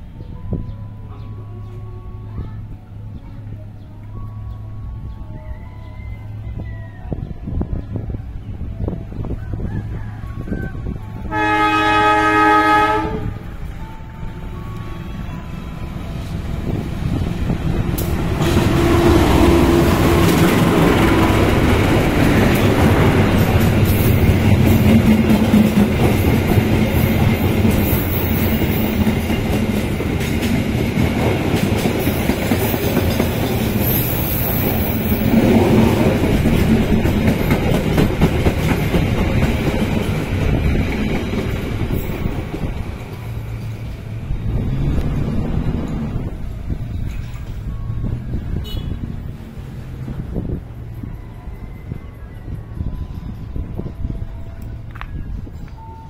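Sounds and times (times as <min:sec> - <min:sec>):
diesel locomotive passing: 0:00.0 - 0:56.0
train wheels clattering on rail joints: 0:17.8 - 0:43.8.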